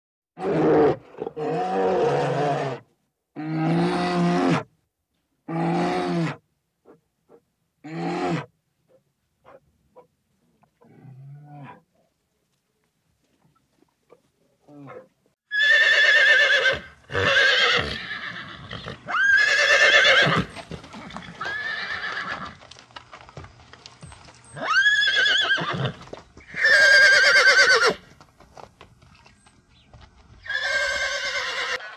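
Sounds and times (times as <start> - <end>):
horse whinnying: 0.4 - 2.8, 15.5 - 22.6, 24.6 - 28.0, 30.4 - 31.9.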